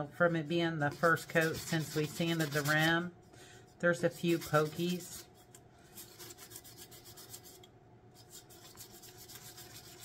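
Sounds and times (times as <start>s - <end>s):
sandpaper rubbing on tumbler: 0.8s - 3.1s, 3.9s - 7.6s, 8.2s - 10.0s.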